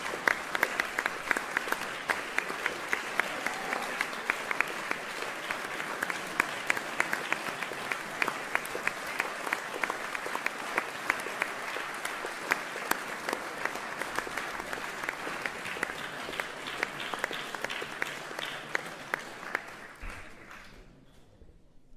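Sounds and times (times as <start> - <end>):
audience applauding: 0.0 - 21.0.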